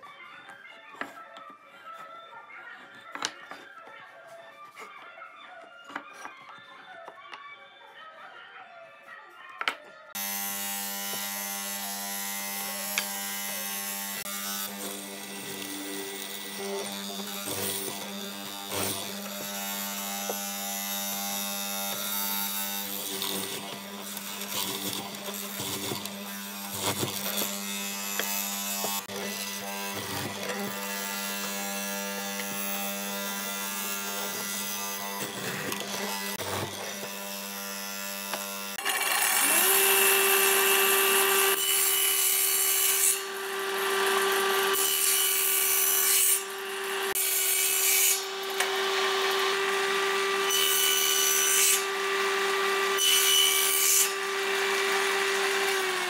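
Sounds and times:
chisel knocking and scraping wood: 0:02.9 - 0:03.7
table saw cutting wood: 0:09.6 - 0:56.0
mortiser motor humming: 0:10.2 - 0:41.6, 0:43.2 - 0:45.4, 0:48.2 - 0:50.5, 0:51.8 - 0:53.0, 0:54.2 - 0:56.0.

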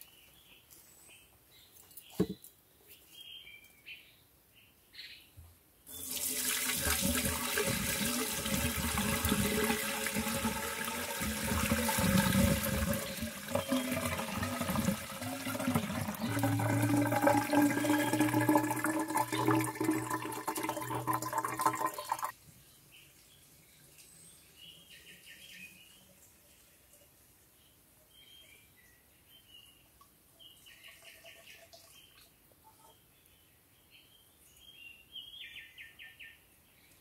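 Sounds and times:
water pouring into bamboo cup: 0:05.9 - 0:22.3.

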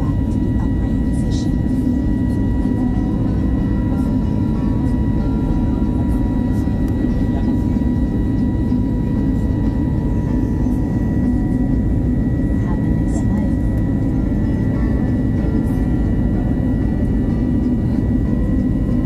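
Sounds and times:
jet engine low roar: 0:00.0 - 0:19.0
thin steady whine: 0:00.0 - 0:19.0.

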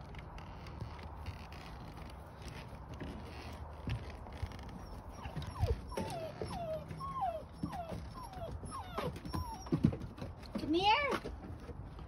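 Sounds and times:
puppy whimpering: 0:04.6 - 0:10.2.

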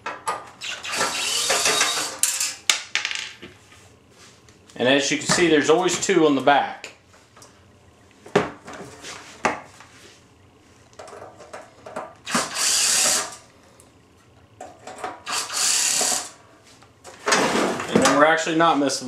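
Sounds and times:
cordless drill running: 0:00.6 - 0:02.2, 0:12.3 - 0:13.4, 0:15.3 - 0:16.4.

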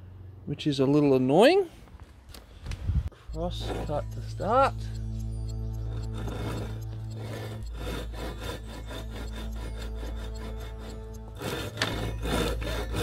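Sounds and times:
low hum: 0:02.9 - 0:13.0
hand saw rasping through wood: 0:03.3 - 0:04.6, 0:05.8 - 0:13.0.

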